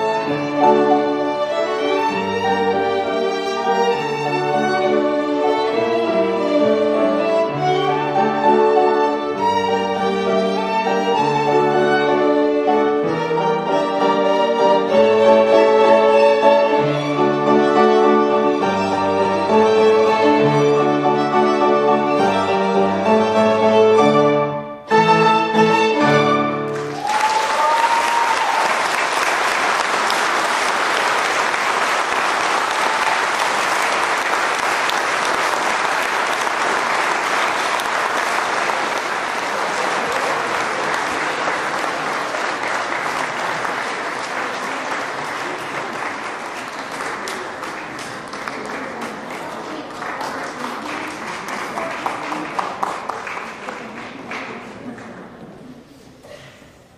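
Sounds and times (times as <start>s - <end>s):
violins playing chords: 0.0s - 26.9s
audience applauding: 26.6s - 55.4s.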